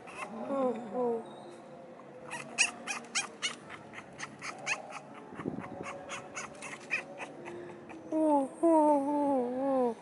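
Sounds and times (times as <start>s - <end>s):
puppies squeaking and whimpering: 0.0s - 0.4s, 2.3s - 8.1s.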